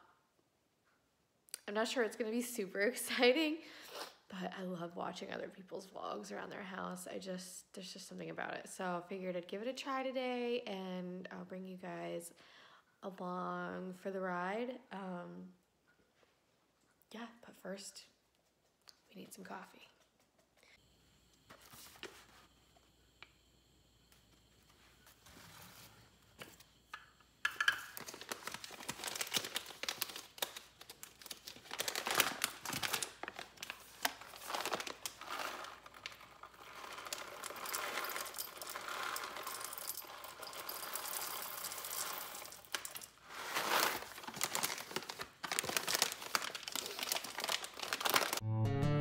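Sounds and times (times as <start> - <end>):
kitchen clicks and knocks: 27.0 - 28.0
packaging crinkling: 27.6 - 48.4.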